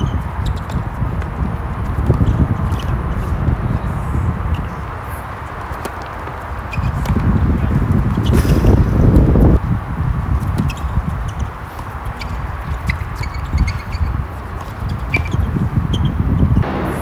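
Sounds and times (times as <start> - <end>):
loud low rumble: 16.6 - 17.0.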